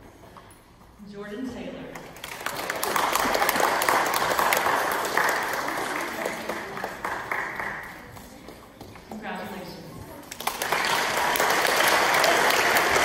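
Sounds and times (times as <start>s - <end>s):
audience applauding: 2.2s - 8.2s, 10.3s - 13.0s.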